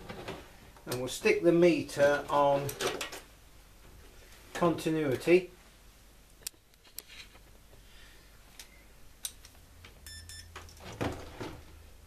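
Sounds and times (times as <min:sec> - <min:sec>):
multimeter stuttering beep: 0:10.1 - 0:10.5.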